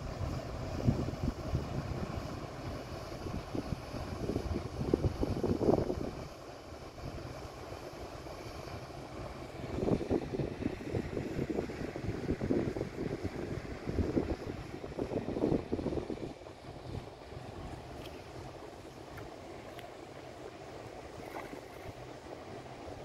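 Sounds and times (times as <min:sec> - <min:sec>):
wind gusting on microphone: 0:00.0 - 0:06.3, 0:09.4 - 0:18.5.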